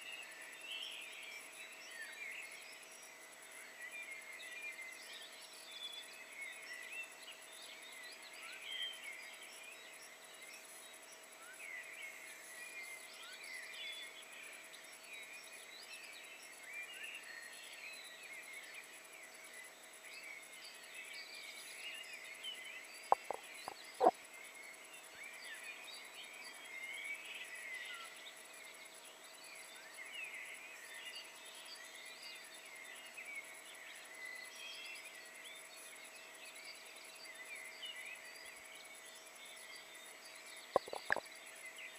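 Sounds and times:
faint steady hum: 0.0s - 41.9s
songbirds chirping: 0.2s - 41.9s
sharp clicks: 23.1s - 23.4s, 40.8s - 41.2s.

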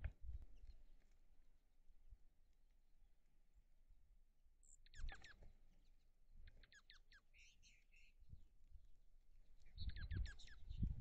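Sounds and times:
songbirds chirping: 4.4s - 11.0s.

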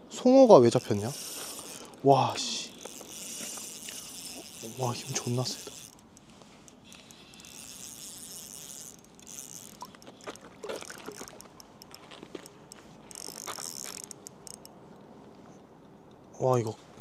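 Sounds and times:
reel cranking clicks: 0.6s - 14.8s
fishing reel drag hiss: 0.7s - 11.4s.

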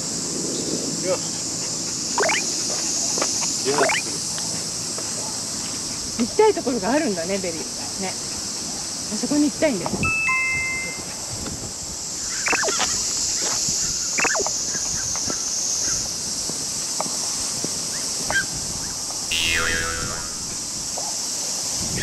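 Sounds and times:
insects droning: 0.0s - 10.0s, 11.0s - 22.0s
short bird calls: 12.3s - 12.8s, 14.2s - 14.5s, 19.3s - 20.5s
noisy falling bird call: 12.3s - 13.0s, 14.2s - 14.7s, 19.3s - 20.6s.

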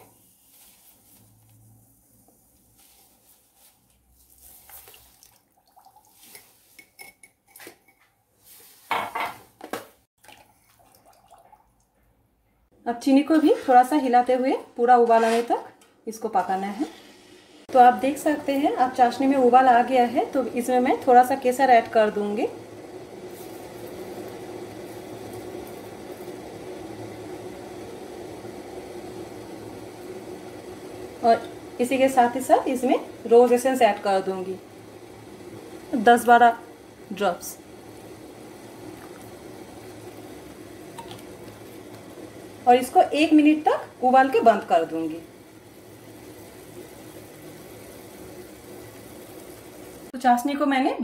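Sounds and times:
sugar pouring into saucepan: 0.0s - 7.1s, 20.0s - 50.1s.

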